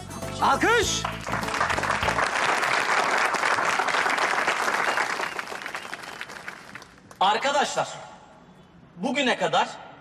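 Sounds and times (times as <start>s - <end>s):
crowd applauding: 0.3s - 7.2s.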